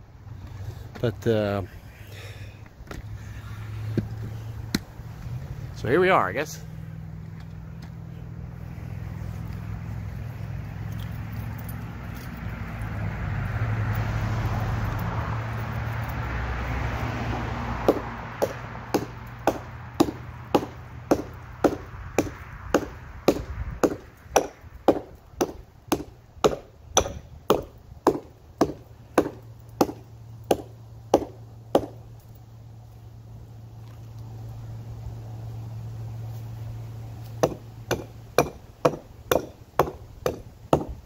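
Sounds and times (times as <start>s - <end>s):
hatchet chopping wood: 17.8s - 32.0s, 37.3s - 41.0s.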